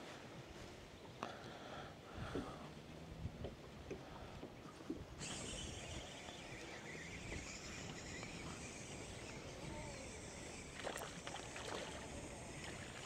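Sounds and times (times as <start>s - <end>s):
insects: 5.2s - 13.0s.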